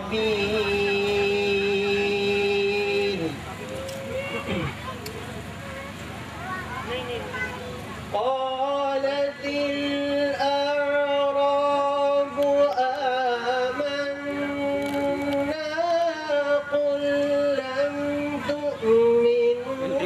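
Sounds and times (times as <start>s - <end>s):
man chanting melodically into microphone: 0.0s - 3.4s, 8.1s - 20.0s.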